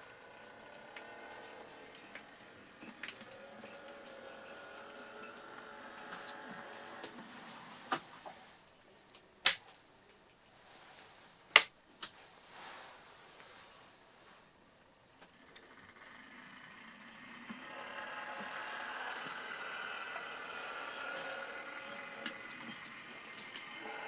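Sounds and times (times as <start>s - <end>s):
small electric motor whining: 0.0s - 7.8s, 15.3s - 24.0s.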